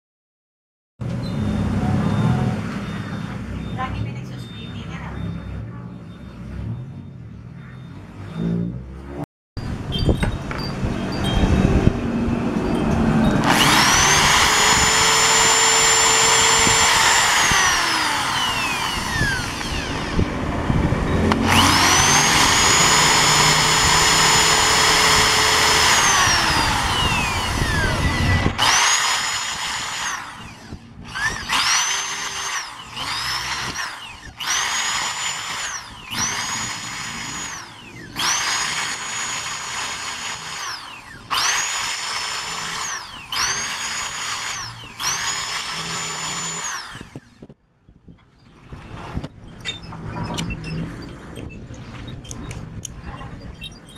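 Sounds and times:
electric drill drilling metal: 13.3s - 20.5s, 21.2s - 47.4s.

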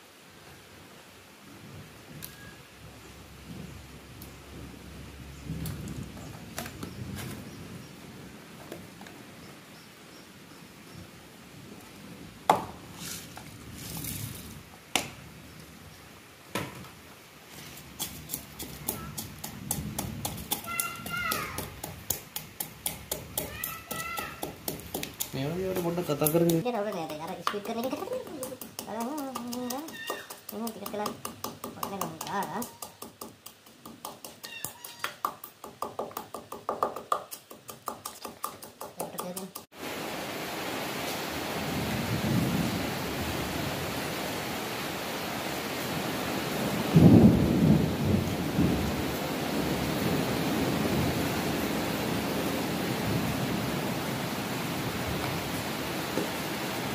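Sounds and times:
sharp wooden knocks: 12.5s - 12.7s, 18.0s - 39.7s
pestle pounding in wooden mortar: 18.0s - 39.7s.

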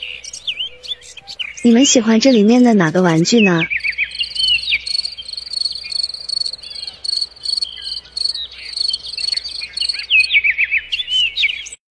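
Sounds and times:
bird chirps: 0.0s - 11.8s
crickets chirping: 3.7s - 10.3s.

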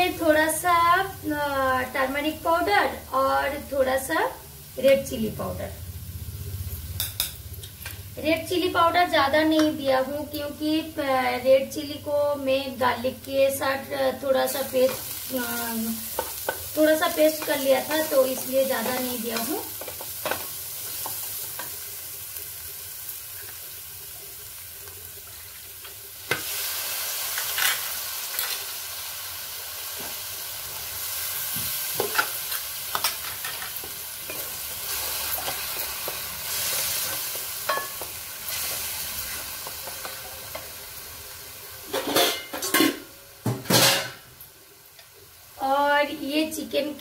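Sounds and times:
masala sizzling in oil: 0.0s - 47.0s.

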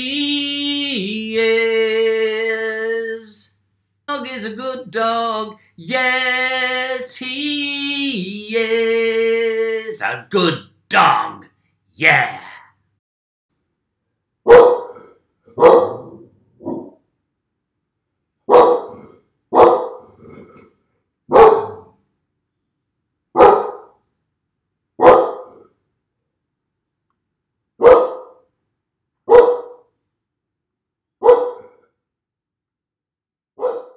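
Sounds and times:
dog barking: 14.5s - 17.0s, 18.5s - 20.1s, 21.3s - 22.0s, 23.3s - 24.0s, 25.0s - 25.7s, 27.8s - 28.4s, 29.3s - 29.9s, 31.2s - 31.8s, 33.6s - 33.9s.

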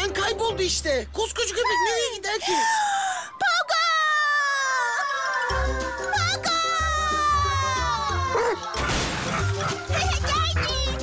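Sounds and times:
background music: 0.0s - 2.0s, 2.6s - 11.0s
high cartoon voice calling: 1.5s - 2.2s
crash through metal door: 8.8s - 9.9s.

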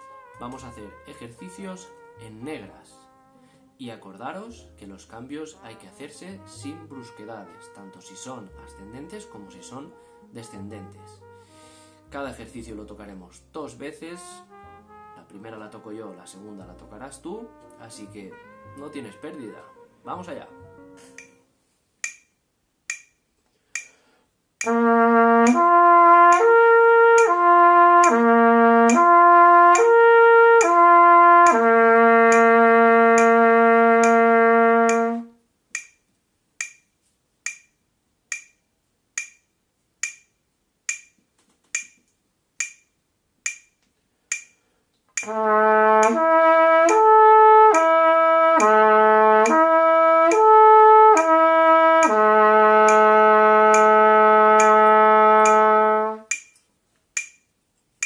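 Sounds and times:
trumpet playing slurred notes: 0.0s - 3.8s, 4.4s - 21.5s, 24.6s - 35.4s, 45.2s - 56.3s
metronome clicking: 21.0s - 21.4s, 22.0s - 38.6s, 39.2s - 57.5s.

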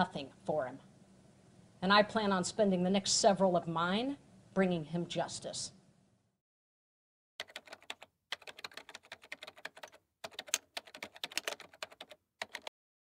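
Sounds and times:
keyboard keystroke clicks: 7.4s - 12.7s.

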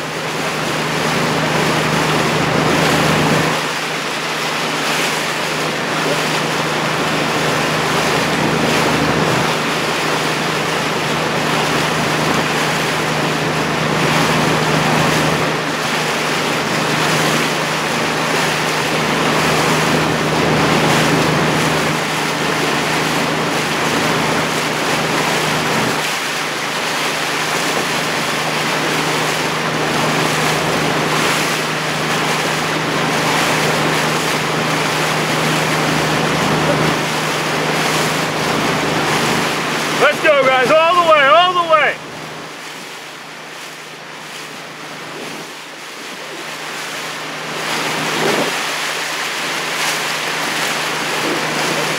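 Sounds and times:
motorboat engine humming: 0.0s - 51.9s
water rushing: 0.0s - 51.9s
wind noise on microphone: 47.9s - 48.6s.

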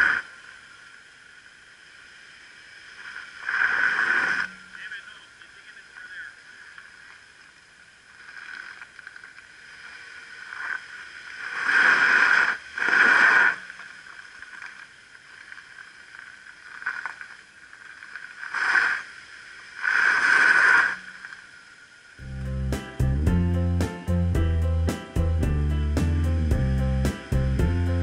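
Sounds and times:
music: 22.2s - 28.0s.

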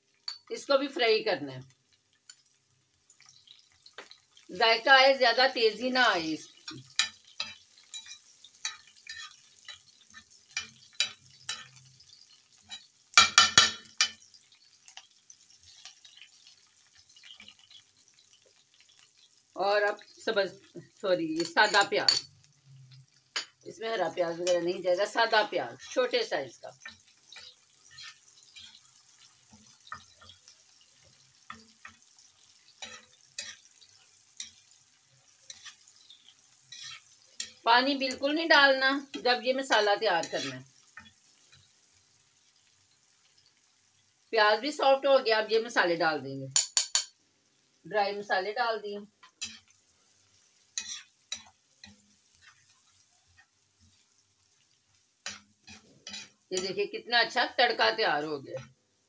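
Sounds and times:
food sizzling in oil: 0.0s - 59.0s
metal spatula scraping iron pan: 6.6s - 11.8s, 26.8s - 30.4s, 32.8s - 34.6s, 35.4s - 38.2s, 39.1s - 41.6s, 50.8s - 53.4s, 55.2s - 56.8s.

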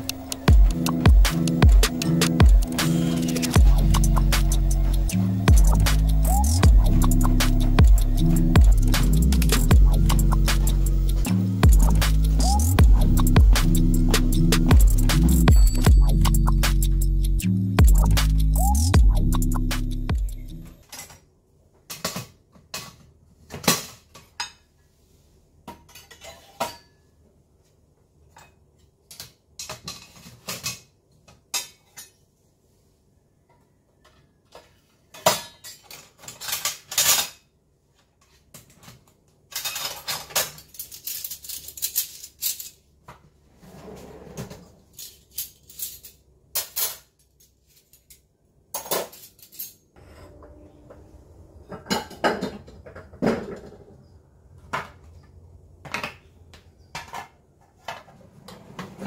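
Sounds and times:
cutlery and dishes clinking: 20.8s - 21.3s, 25.7s - 27.1s, 28.3s - 32.2s, 34.5s - 37.5s, 38.6s - 42.8s, 44.4s - 49.8s.

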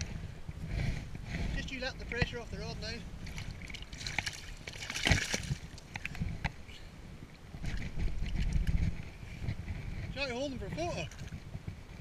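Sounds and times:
wind rumble on microphone: 0.0s - 12.0s
water sloshing and splashing: 3.2s - 6.4s.

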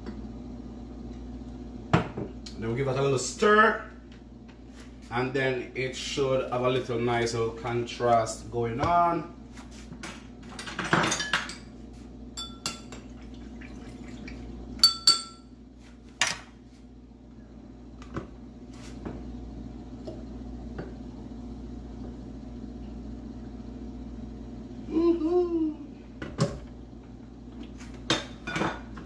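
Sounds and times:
glass and utensils clinking: 12.4s - 13.1s, 14.8s - 15.5s.

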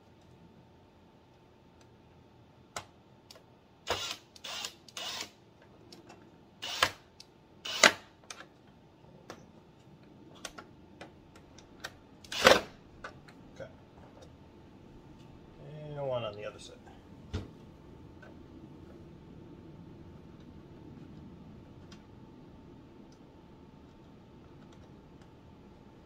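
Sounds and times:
drill driving screws into plastic: 3.9s - 5.4s, 6.6s - 8.1s, 12.2s - 12.8s.

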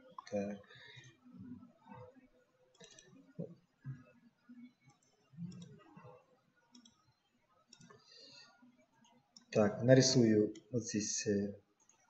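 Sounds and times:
faint computer mouse clicks: 2.7s - 3.2s, 6.7s - 7.0s.

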